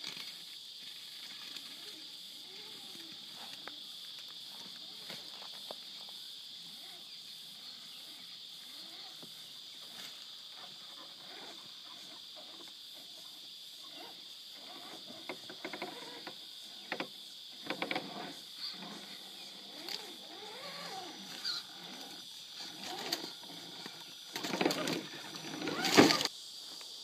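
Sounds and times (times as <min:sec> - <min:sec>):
insects droning: 0:00.0 - 0:27.0
electric motor and gears whining: 0:13.8 - 0:26.3.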